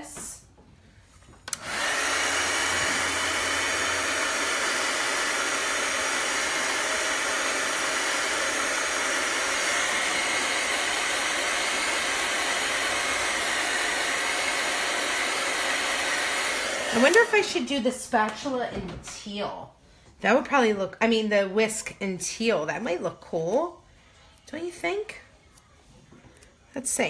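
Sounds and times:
hot-air blower running: 1.4s - 17.6s.

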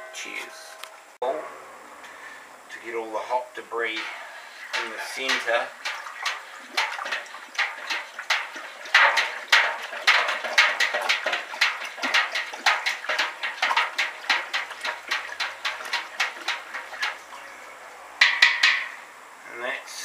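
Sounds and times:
liquid swishing and sloshing: 3.9s - 17.6s.

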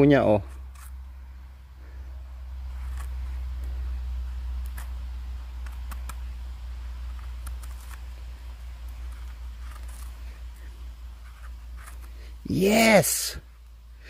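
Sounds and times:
knife scraping mushroom stem: 0.4s - 1.0s, 7.0s - 12.4s.

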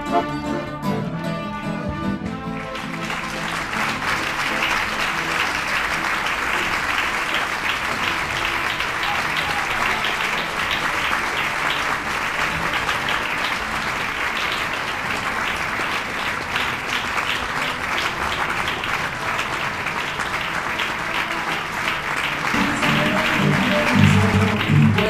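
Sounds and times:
music: 0.0s - 25.0s
audience applauding: 2.2s - 25.0s.

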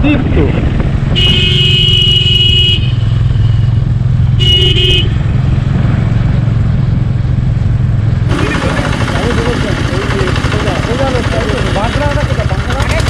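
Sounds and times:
motorcycle engine running: 0.0s - 13.0s
horn beep: 1.2s - 5.2s.

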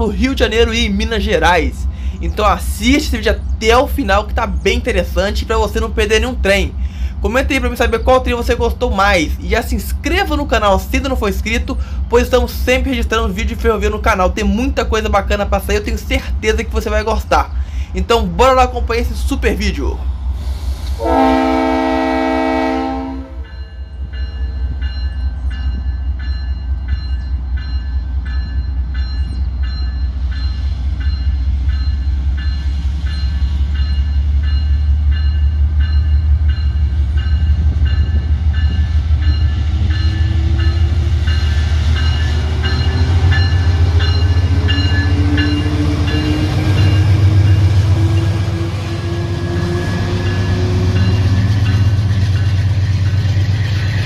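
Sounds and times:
locomotive engine rumble: 0.0s - 54.0s
locomotive air horn: 21.0s - 23.5s
bell ringing steadily: 23.4s - 47.6s, 50.2s - 53.2s.

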